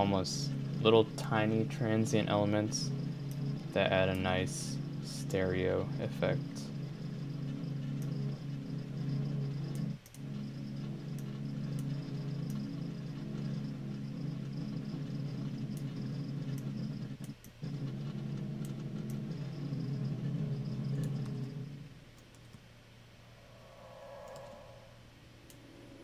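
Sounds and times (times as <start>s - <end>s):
high drone: 0.0s - 14.3s, 23.1s - 26.0s
low synth pad: 0.0s - 16.2s, 23.0s - 26.0s.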